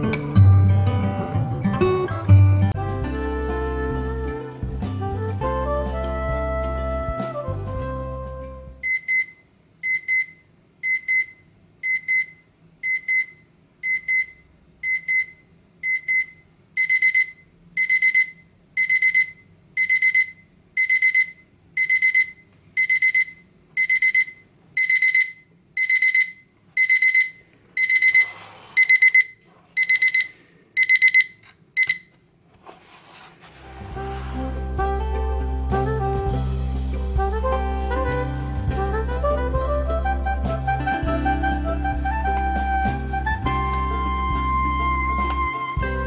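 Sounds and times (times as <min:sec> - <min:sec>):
alarm clock beeping: 0:08.8 - 0:32.1
rustling: 0:32.5 - 0:35.0.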